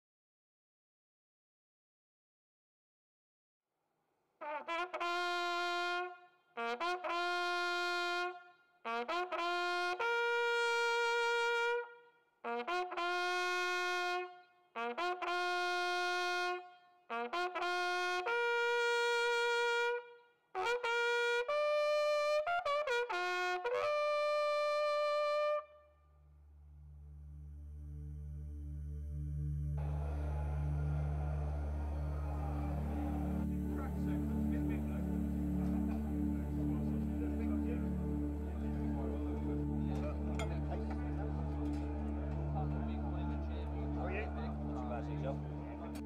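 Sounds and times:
bugle call: 4.4s - 11.9s, 12.5s - 25.8s
low drone: 26.6s - 46.0s.

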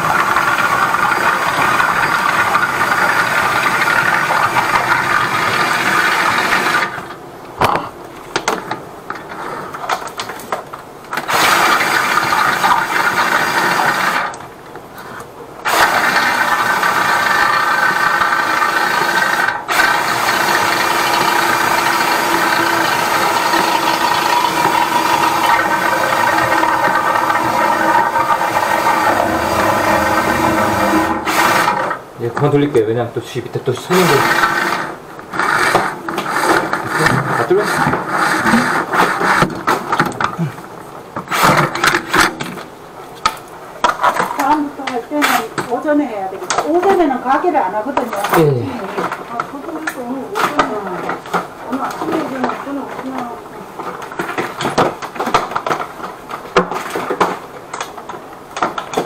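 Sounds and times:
drain-cleaning machine running: 0.0s - 7.2s, 11.1s - 14.5s, 15.6s - 32.8s, 33.6s - 40.6s
cable rattling inside pipe: 19.0s - 32.5s.

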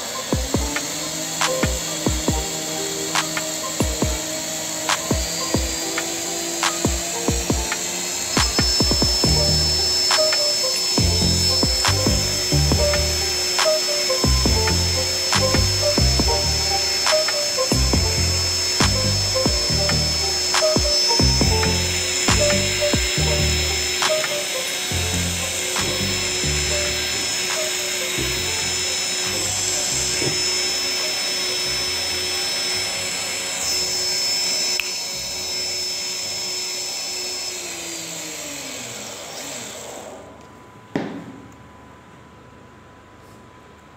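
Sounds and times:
background music: 0.0s - 34.6s
drone motors whining: 0.0s - 40.6s.

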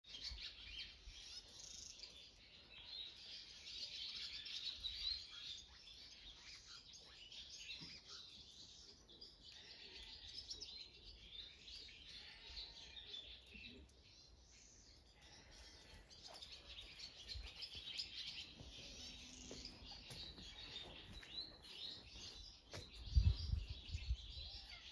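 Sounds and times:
small birds chirping: 0.0s - 24.9s.

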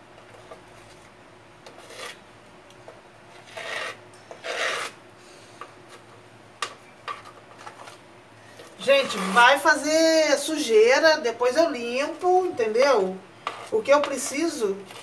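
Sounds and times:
paste scraped in plastic cup: 1.7s - 2.2s, 3.4s - 5.0s, 8.6s - 9.6s.

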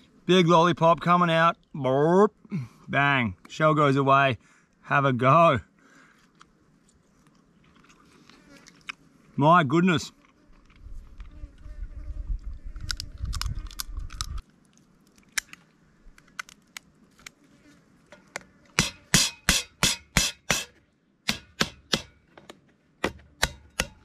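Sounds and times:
knife cracking crayfish shell: 12.8s - 14.4s.

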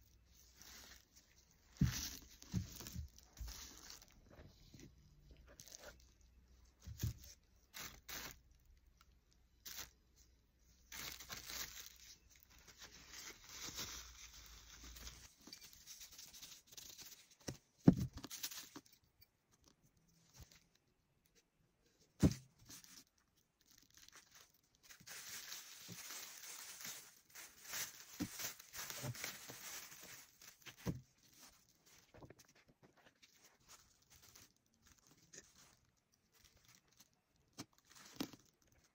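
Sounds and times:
plastic bags rustling: 0.1s - 8.8s, 9.6s - 10.0s, 10.8s - 17.2s, 23.6s - 38.9s.

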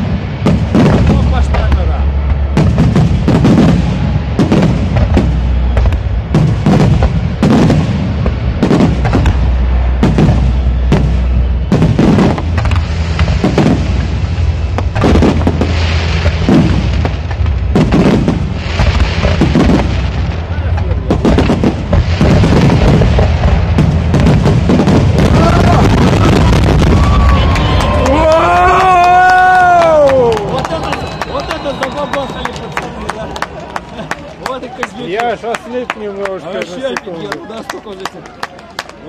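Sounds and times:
firework shells booming: 0.0s - 28.2s
fireworks hissing crackle: 0.0s - 29.8s.

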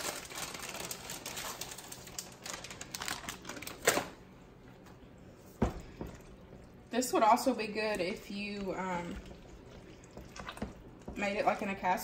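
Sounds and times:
plastic bag crinkling: 0.0s - 4.2s.

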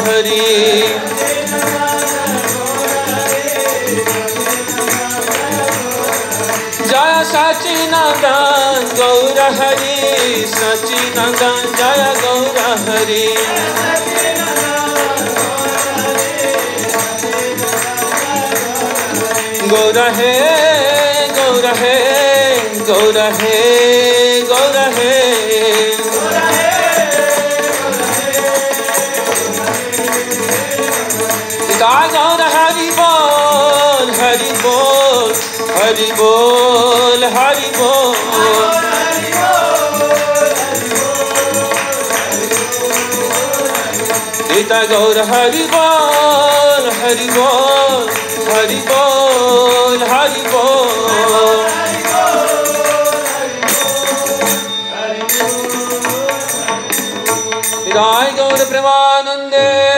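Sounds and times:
man chanting: 0.0s - 6.3s, 31.6s - 51.8s
harmonium melody: 0.0s - 59.9s
percussion beat: 0.0s - 59.9s.

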